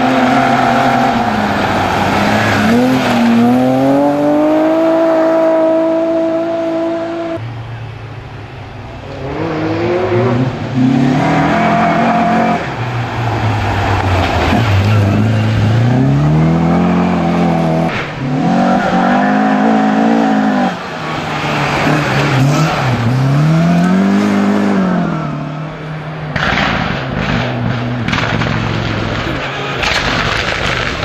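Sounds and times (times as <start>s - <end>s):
rally cars passing at full throttle: 0.0s - 31.0s
engine cracks and pops: 26.3s - 31.0s.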